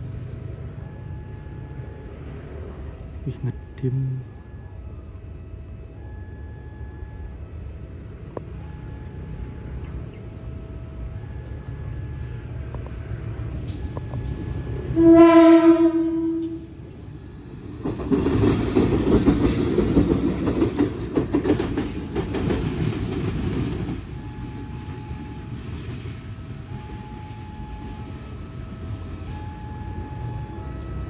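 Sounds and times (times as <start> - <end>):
locomotive horn blast: 14.8 - 16.8
wheels clicking over rail joints: 16.0 - 26.2.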